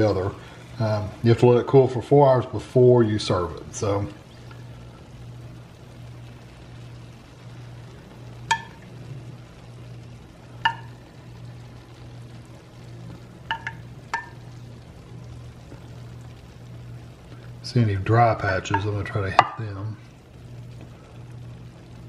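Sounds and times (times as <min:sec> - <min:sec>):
faint steady hiss: 0:00.0 - 0:22.0
low hum: 0:00.0 - 0:22.0
spoon clinking: 0:13.5 - 0:14.4.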